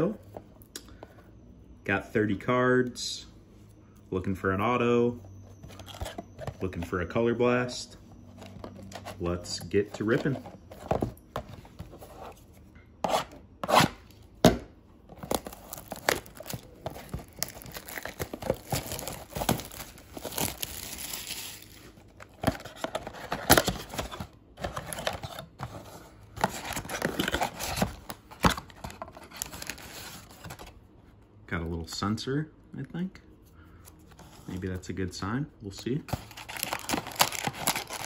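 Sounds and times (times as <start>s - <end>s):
card packs handled: 5.2s - 30.9s, 35.9s - 38.0s
cellophane crinkling and tearing: 15.2s - 25.4s, 36.1s - 38.0s.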